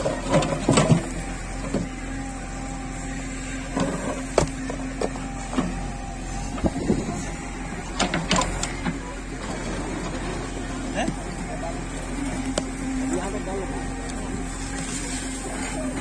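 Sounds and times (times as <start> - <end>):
diesel engine under hydraulic load: 0.0 - 16.0.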